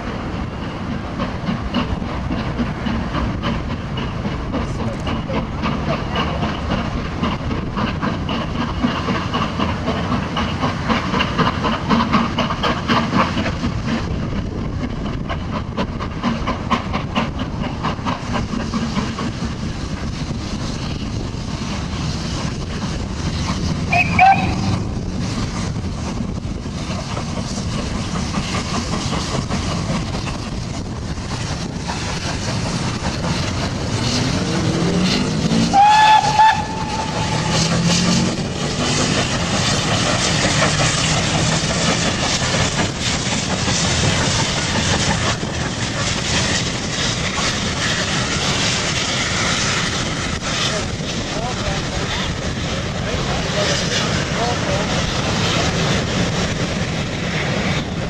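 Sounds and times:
steam locomotive exhaust beats: 0.0 - 58.0
wheel and rail noise: 0.0 - 58.0
high whistle toot: 23.9 - 24.7, 35.7 - 37.4.

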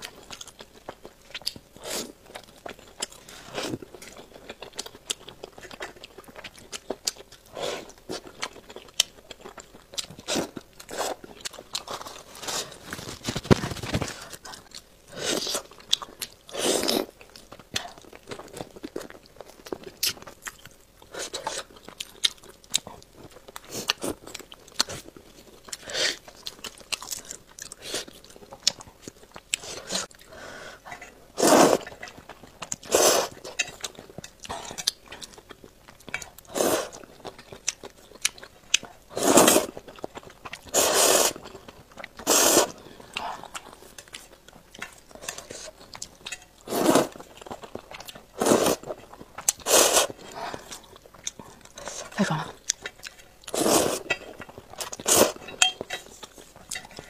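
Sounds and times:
wet chewing and crunching: 0.0 - 57.0
slurping noodles: 15.1 - 15.7, 16.5 - 17.1, 31.4 - 31.9, 32.8 - 33.5, 36.5 - 37.0, 39.1 - 39.8, 40.7 - 41.4, 42.2 - 42.8, 46.6 - 47.2, 48.4 - 48.9, 49.6 - 50.8, 53.5 - 54.1, 54.8 - 55.4.

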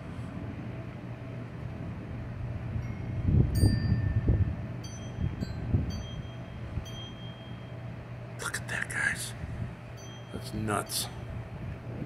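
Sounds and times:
wind chimes ringing: 2.8 - 8.0, 9.9 - 11.4.

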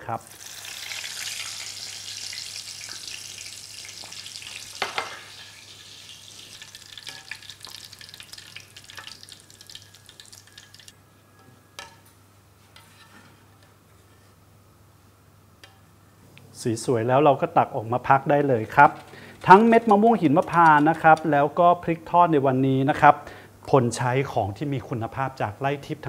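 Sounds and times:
chilli sizzling in hot oil: 0.0 - 11.0.

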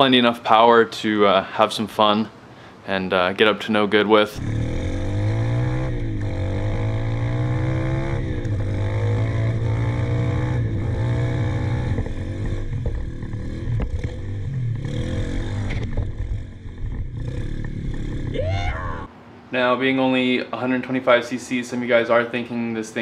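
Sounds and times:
motorbike engine revving: 4.4 - 19.1.

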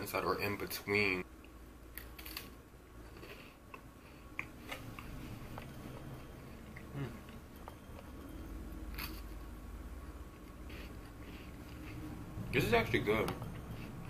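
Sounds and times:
cookie being chewed: 3.1 - 12.2.

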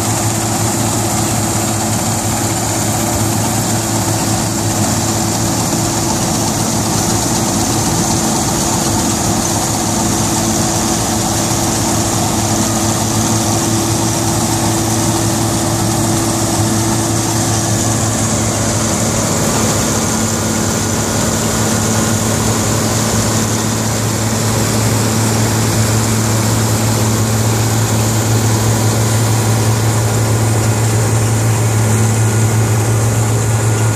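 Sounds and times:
combine harvester droning: 0.0 - 33.9.

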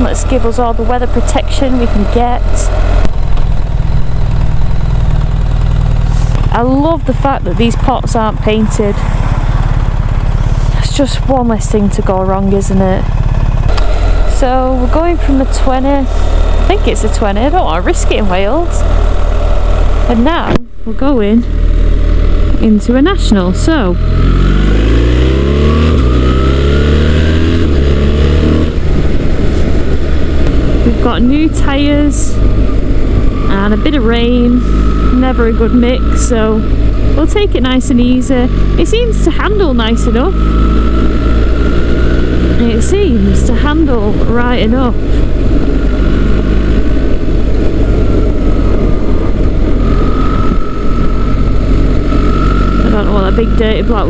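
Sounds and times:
thin steady whine: 0.0 - 9.5, 13.6 - 24.7, 28.7 - 54.0
motorcycle engine accelerating: 0.0 - 54.0
wind noise: 0.0 - 54.0
tyre noise on wet road: 2.6 - 10.9, 23.2 - 54.0.

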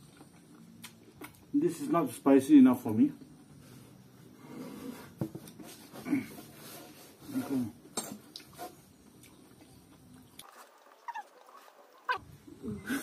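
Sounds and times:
chewing and mouth noises: 0.0 - 1.5, 8.3 - 12.2.

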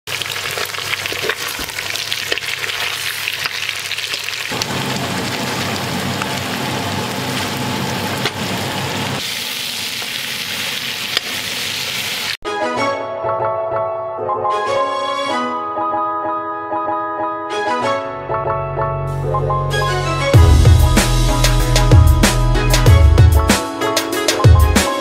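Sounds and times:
food sizzling in hot oil: 0.1 - 12.4.

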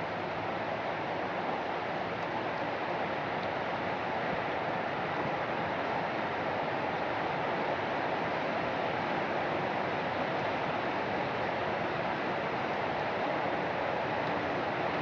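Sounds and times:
steady rain falling: 0.0 - 15.0.

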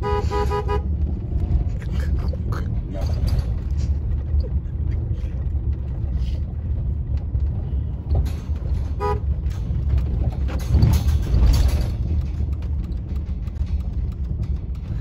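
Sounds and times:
horn toot: 0.0 - 0.9, 9.0 - 9.2
van engine and tyre rumble: 0.0 - 15.0.

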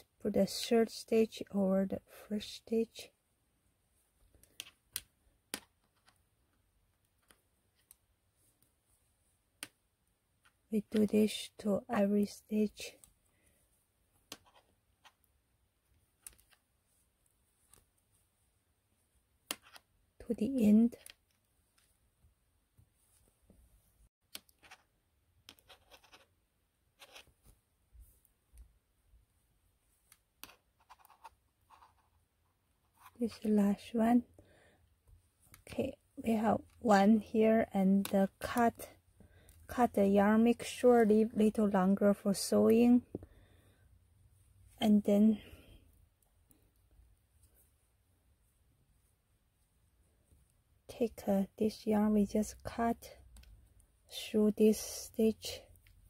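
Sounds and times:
knitting needles clicking: 4.3 - 8.7, 19.4 - 19.9, 53.2 - 53.9.

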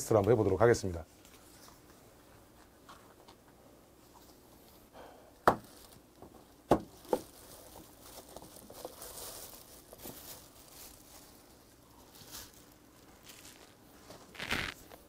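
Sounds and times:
plastic wrap crinkling: 5.5 - 15.0.

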